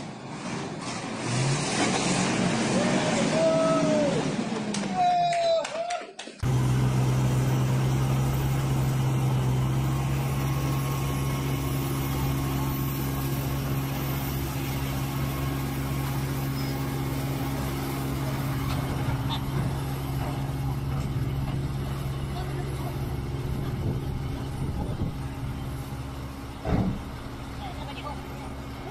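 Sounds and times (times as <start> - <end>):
heavy diesel engine running: 6.4 - 28.9.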